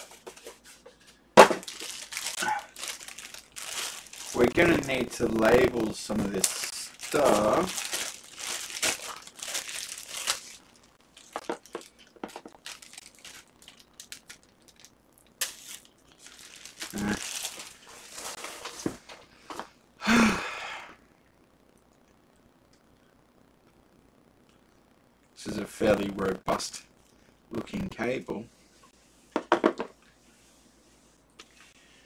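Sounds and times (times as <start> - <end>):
plastic packaging crinkling: 1.4 - 18.9.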